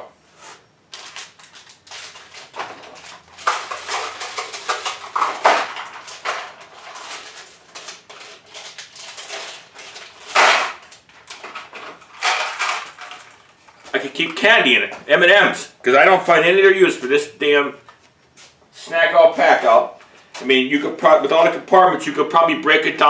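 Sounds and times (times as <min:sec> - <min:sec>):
candies rattling into plastic bins: 0:00.9 - 0:15.3
plastic bins clicking: 0:01.0 - 0:15.2.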